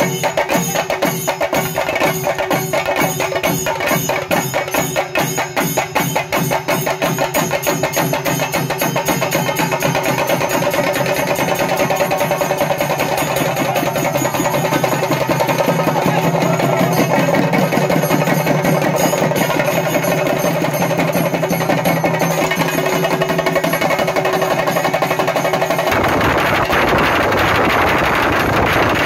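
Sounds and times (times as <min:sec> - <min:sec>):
drums beaten fast: 0:00.0 - 0:29.0
wind rumble on microphone: 0:25.9 - 0:29.0.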